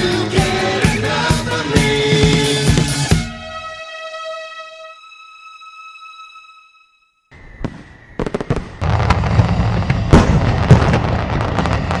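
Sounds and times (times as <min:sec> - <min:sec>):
held musical note: 0:03.0 - 0:07.2
loud firework bangs: 0:07.4 - 0:12.0
fireworks cracking and popping: 0:07.5 - 0:12.0.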